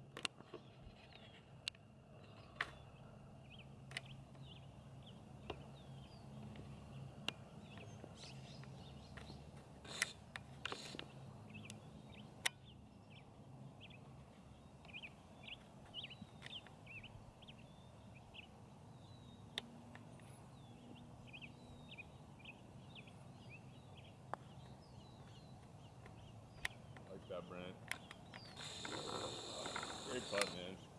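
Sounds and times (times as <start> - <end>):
small birds chirping: 0.3 - 30.9
sharp clicks: 8.6 - 11.8, 27.8 - 30.8.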